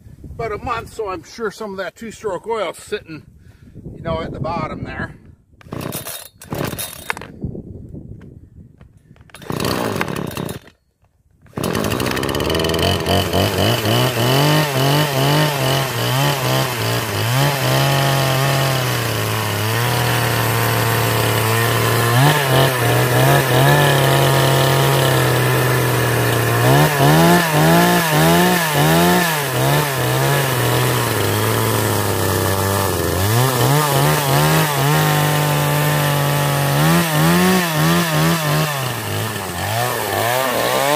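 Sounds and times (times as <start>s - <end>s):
chainsaw engine running: 5.7s - 7.3s, 9.3s - 10.8s, 11.5s - 40.9s.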